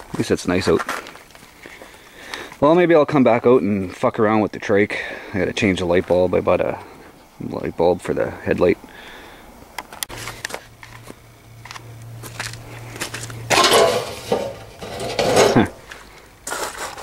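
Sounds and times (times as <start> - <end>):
metal mailbox clanking and rattling: 13.5 - 15.9.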